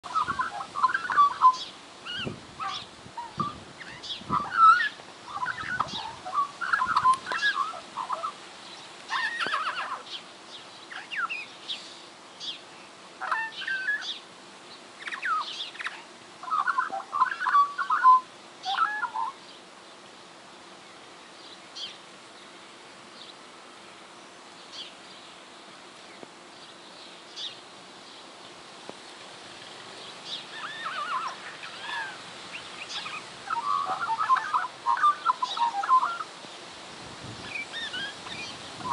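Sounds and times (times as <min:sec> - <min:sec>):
magpie warbling and chattering: 0:00.1 - 0:08.4, 0:09.1 - 0:10.1, 0:30.5 - 0:36.3.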